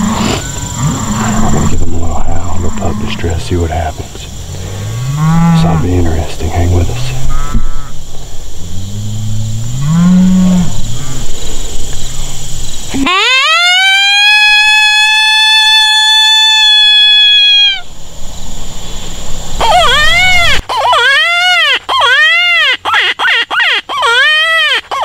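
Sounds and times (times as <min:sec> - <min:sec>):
low rising and falling moans: 0:00.0 - 0:07.9, 0:08.5 - 0:13.1
coyote howl predator call: 0:12.9 - 0:17.9, 0:19.6 - 0:25.0.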